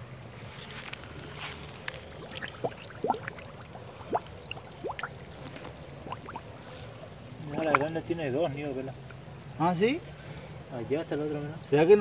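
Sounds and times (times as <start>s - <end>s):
jug gurgling underwater: 1.8s - 7.0s.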